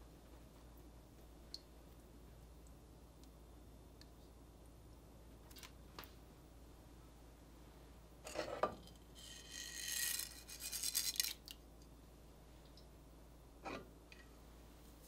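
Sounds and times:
peppercorns pattering into pot: 0:09.2 - 0:11.6.

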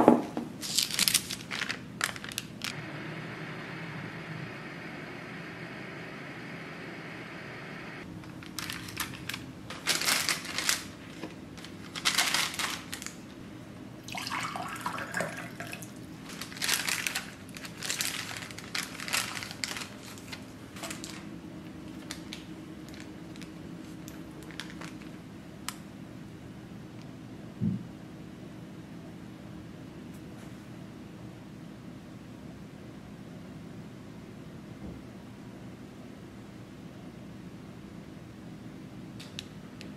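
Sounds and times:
paper and plastic crinkling: 0:00.6 - 0:02.8, 0:08.2 - 0:13.4, 0:16.2 - 0:25.2.

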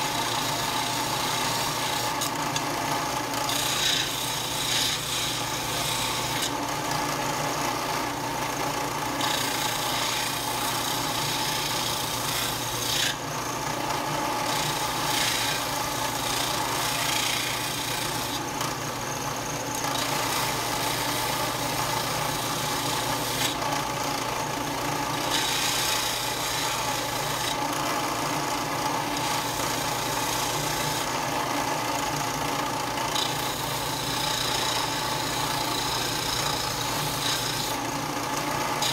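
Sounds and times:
metal grinding on disc sander: 0:00.0 - 0:06.8, 0:09.2 - 0:18.6, 0:25.1 - 0:27.6, 0:33.0 - 0:38.9.

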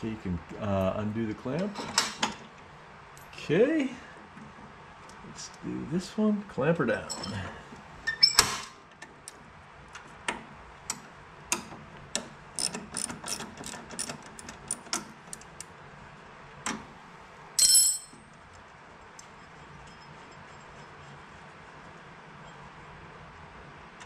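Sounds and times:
ratchet wrench clicking: 0:12.6 - 0:15.7.

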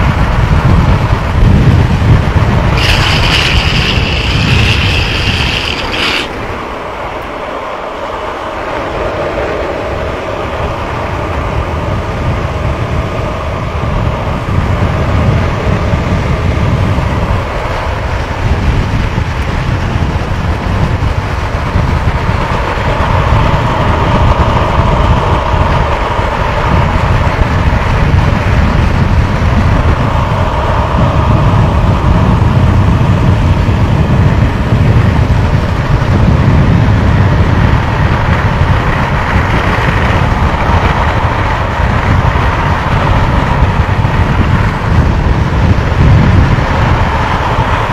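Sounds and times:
skateboard wheels rolling on asphalt: 0:00.0 - 0:47.9
skateboard wheels squealing: 0:02.6 - 0:07.0.

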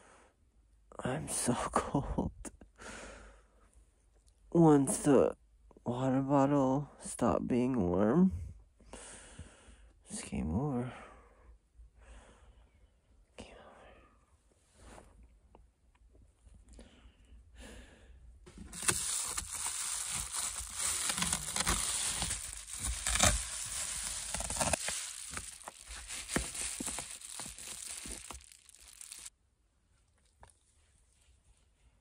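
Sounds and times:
loud crinkling and rustling: 0:18.5 - 0:29.3.

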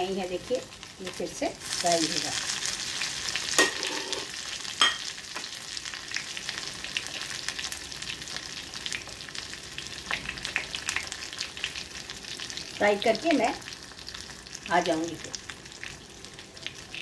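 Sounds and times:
fish sizzling in hot oil: 0:00.0 - 0:17.0.

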